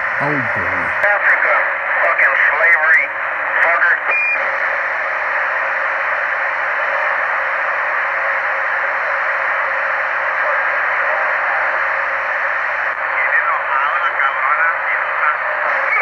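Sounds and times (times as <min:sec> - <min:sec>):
radio static hiss: 0:00.0 - 0:06.1, 0:13.0 - 0:16.0.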